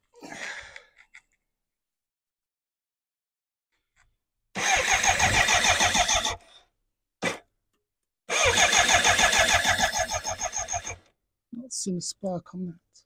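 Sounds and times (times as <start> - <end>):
motorcycle engine cranking on starter: 4.6 - 6.4, 8.3 - 11.0.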